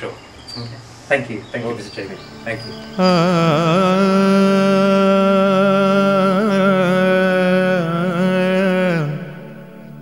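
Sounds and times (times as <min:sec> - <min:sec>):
person singing long held notes: 0:02.3 - 0:10.0.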